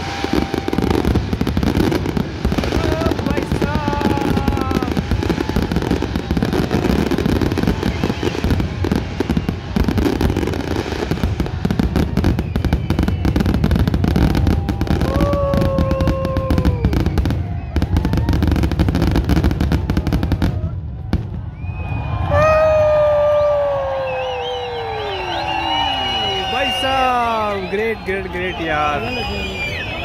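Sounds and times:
crowd voices: 0.0 - 12.6, 17.3 - 30.0
fireworks bangs and crackles: 0.0 - 30.0.

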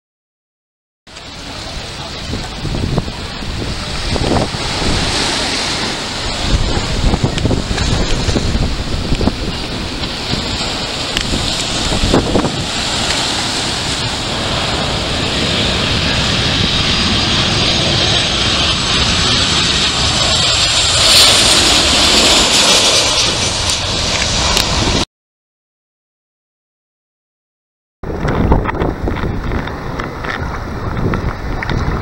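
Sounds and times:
high engine whine: 1.1 - 25.0
jet airliner engine noise: 1.1 - 25.1, 28.0 - 32.0
wind buffeting microphone: 1.2 - 25.0, 28.0 - 32.0.

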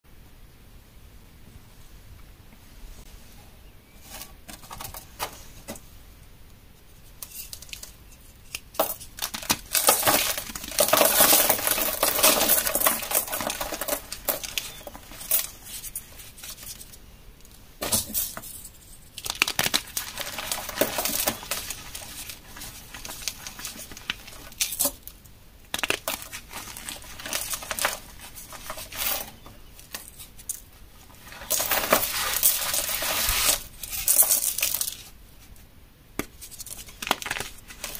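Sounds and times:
chalk blocks snapping and crunching: 7.2 - 16.9, 19.1 - 30.6, 36.2 - 37.9.

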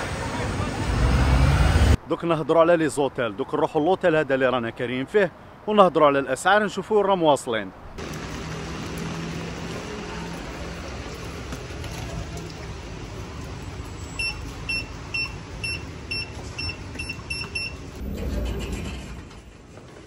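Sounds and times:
street traffic noise: 0.0 - 20.0.

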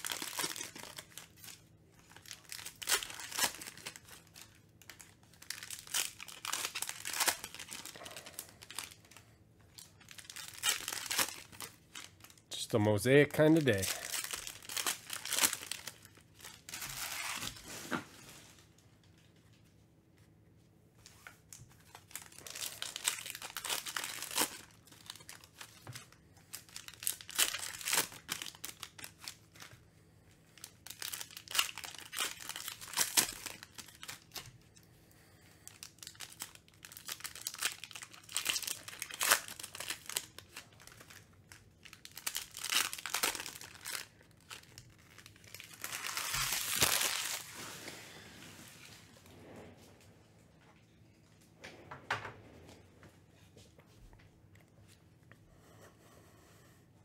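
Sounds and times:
foil wrappers tearing and crinkling: 0.0 - 18.5, 21.8 - 29.8, 30.6 - 34.6, 35.6 - 49.0.

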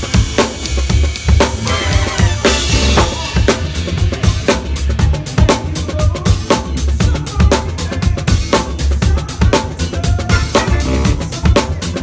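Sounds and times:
bass drum: 0.0 - 12.0
funk band music: 0.0 - 12.0
snare and rimshot backbeat: 9.6 - 12.0.

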